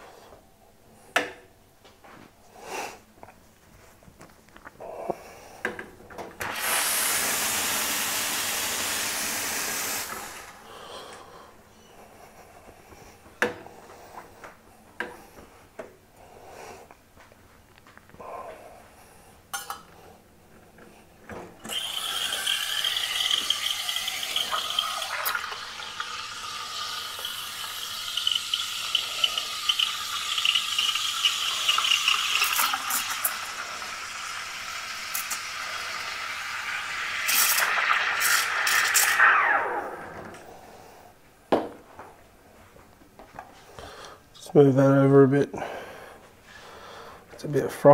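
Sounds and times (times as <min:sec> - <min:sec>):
steam wand hissing: 0:06.4 - 0:10.7, 0:21.7 - 0:39.8.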